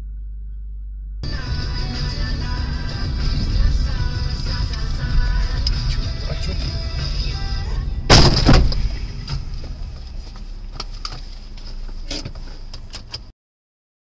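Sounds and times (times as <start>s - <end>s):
steady high whine: 0.0s - 12.9s
low road rumble: 0.0s - 13.3s
loud car impact: 7.8s - 11.3s.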